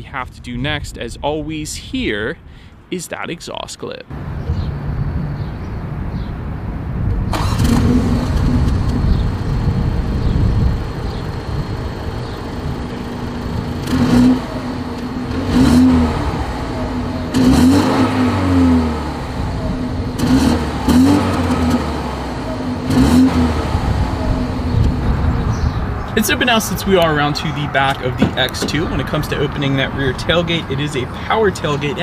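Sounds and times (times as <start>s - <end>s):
car engine starting and idling: 7.0s - 32.0s
engine revving: 7.3s - 32.0s.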